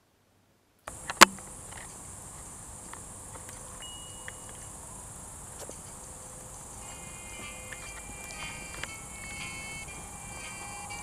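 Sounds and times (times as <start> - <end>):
low hiss: 0.0 - 11.0
crickets chirping: 0.9 - 11.0
sharp click: 1.0 - 2.0.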